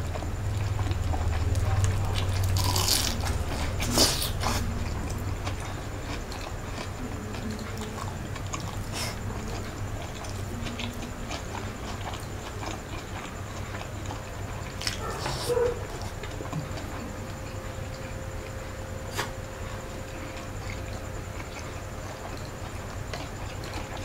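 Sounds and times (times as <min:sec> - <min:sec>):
chewing: 0:00.0 - 0:24.0
crisp bite: 0:02.2 - 0:04.6.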